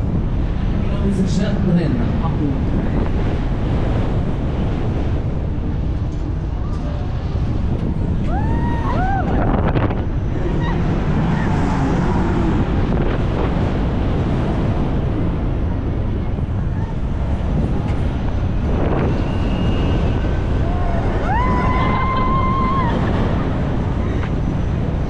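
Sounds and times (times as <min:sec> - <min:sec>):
wind on microphone: 0:00.0 - 0:25.0
rising and falling cries: 0:08.2 - 0:12.9, 0:20.1 - 0:24.0.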